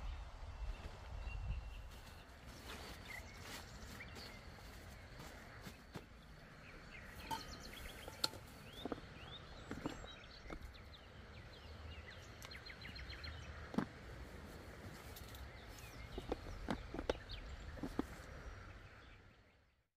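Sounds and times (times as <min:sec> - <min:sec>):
small birds chirping: 0:00.7 - 0:19.8
steady background hush: 0:01.8 - 0:19.5.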